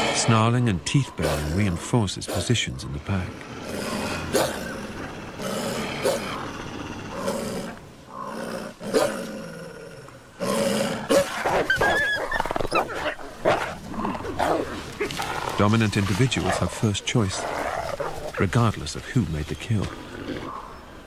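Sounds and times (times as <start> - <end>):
wolves snarling and growling: 1.0 - 18.6, 20.0 - 20.8.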